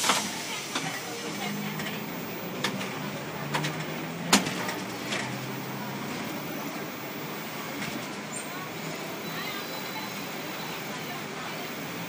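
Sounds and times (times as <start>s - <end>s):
tram cab low hum: 0.0s - 12.0s.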